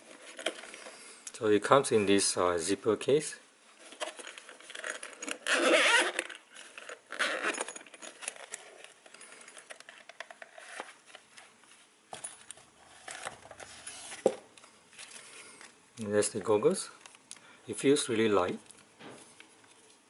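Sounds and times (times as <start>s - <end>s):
zipper pulled open: 4.7s - 7.8s.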